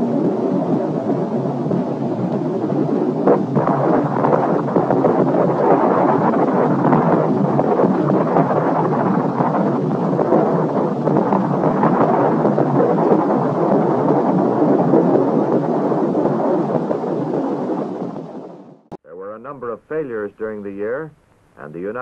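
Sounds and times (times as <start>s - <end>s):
rocket fireball rumble and crackle: 0.0s - 18.9s.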